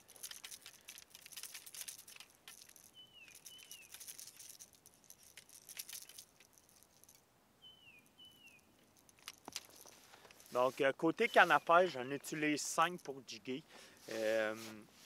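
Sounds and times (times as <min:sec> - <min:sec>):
fishing reels clicking and rattling: 0:00.0 - 0:07.2, 0:09.0 - 0:10.5.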